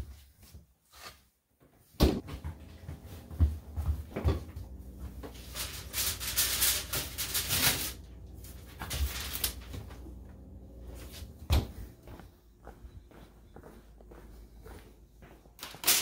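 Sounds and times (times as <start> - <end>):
aluminium foil crinkling: 5.0 - 10.0, 15.6 - 16.0.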